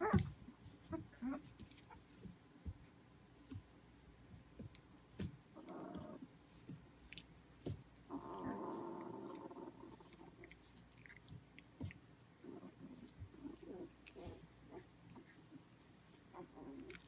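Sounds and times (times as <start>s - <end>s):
puppies growling: 0.0s - 2.0s, 5.5s - 6.3s, 7.0s - 17.0s.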